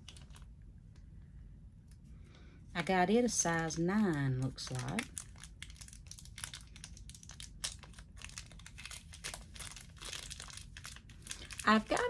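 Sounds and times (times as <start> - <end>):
packet crinkling: 0.0 - 0.5, 3.5 - 12.0.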